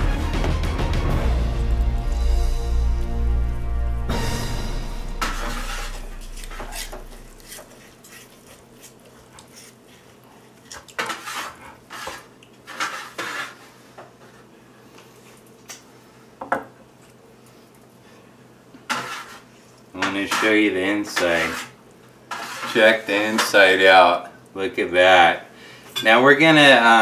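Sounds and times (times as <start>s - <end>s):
background music: 0.0s - 6.8s
knife scraping cutting board: 5.2s - 14.5s, 18.9s - 23.6s.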